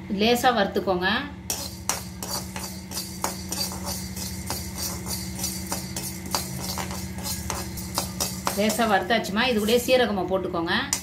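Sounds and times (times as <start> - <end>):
metal spoon scraping a pan: 1.5 - 10.0
seeds rattling in a pan: 1.5 - 10.0.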